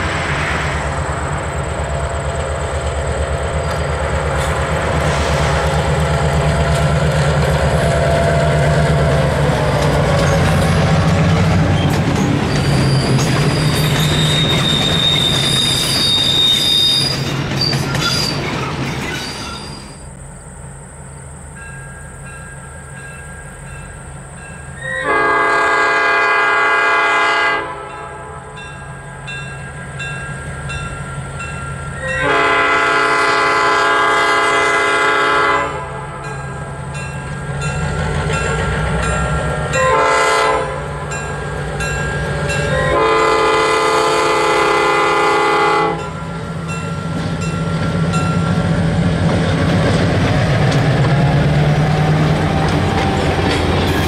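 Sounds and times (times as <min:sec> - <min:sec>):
rail noise: 0:00.0 - 0:54.0
train engine drone: 0:00.0 - 0:54.0
locomotive air horn blasts: 0:24.8 - 0:28.6, 0:32.0 - 0:36.3, 0:39.7 - 0:41.2, 0:42.7 - 0:46.2.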